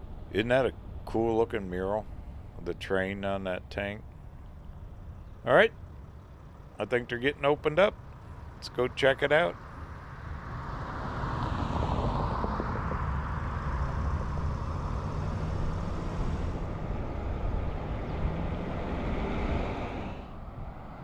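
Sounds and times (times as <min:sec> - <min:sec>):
steady road noise: 0:00.0 - 0:21.0
wind rumble on microphone: 0:08.4 - 0:21.0
car driving past: 0:09.5 - 0:21.0.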